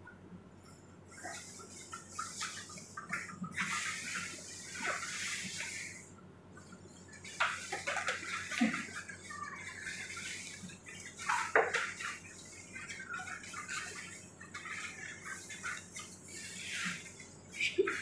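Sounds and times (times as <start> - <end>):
waterproof apron rustling: 7.2 - 18.0.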